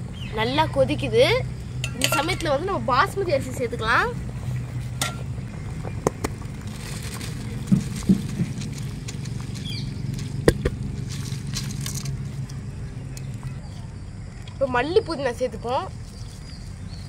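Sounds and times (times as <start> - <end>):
boiling liquid rumble: 1.4 - 13.4
sharp knocks: 10.4 - 10.8.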